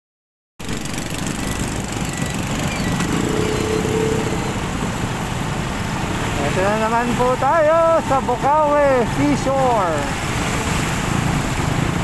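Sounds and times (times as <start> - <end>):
motor scooter engine running: 0.6 - 6.2
water splashing around wheels: 0.6 - 12.0.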